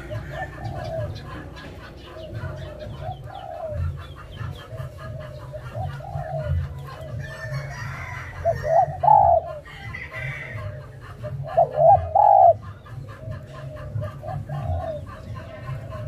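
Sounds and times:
dove cooing: 0.0 - 16.0.

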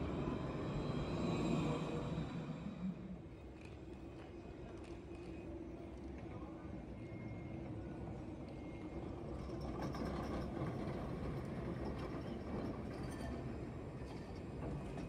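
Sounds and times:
tram rumbling past: 0.0 - 3.6, 7.6 - 15.0.

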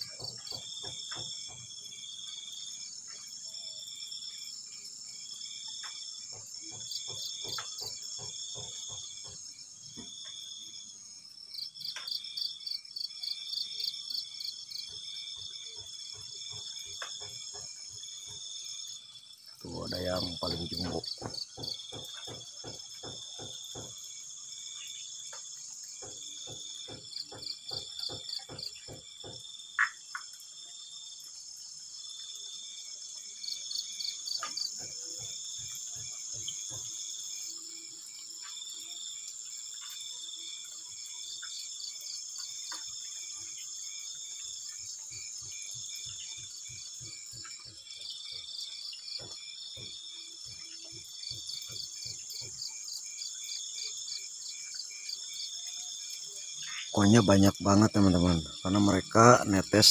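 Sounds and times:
insect high-pitched trill: 0.0 - 59.9
pulsed insect chirping: 0.0 - 59.9.

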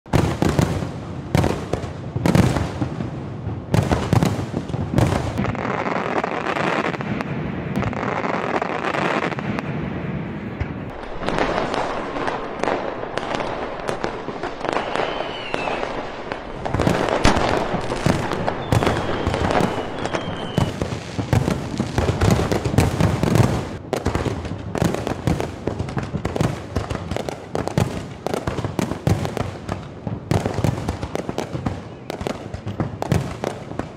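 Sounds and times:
firework crackling: 0.1 - 33.9
falling firework whistles: 5.4 - 23.5
firework shells bursting: 10.6 - 21.5.

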